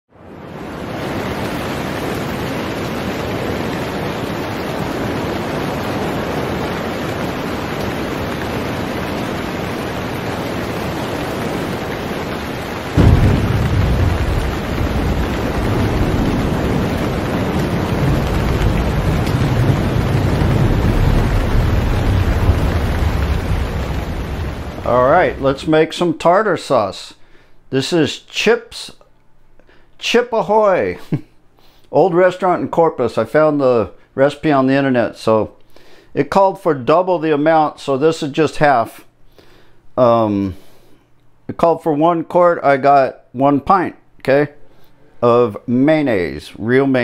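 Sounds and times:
steady rain: 0.1s - 26.1s
rolling thunder rumble: 0.3s - 25.8s
thunder crack: 4.8s - 25.8s.

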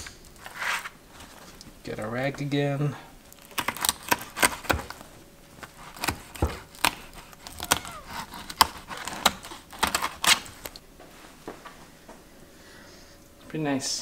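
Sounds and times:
knife cutting through fish bones: 3.4s - 5.0s, 5.6s - 10.8s.

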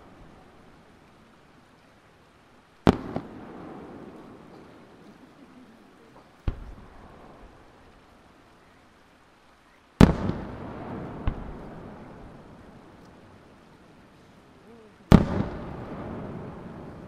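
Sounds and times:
firework cracks: 2.8s - 5.5s, 6.1s - 7.9s, 10.0s - 13.6s, 15.0s - 17.0s
firework shells bursting: 10.0s - 12.0s.

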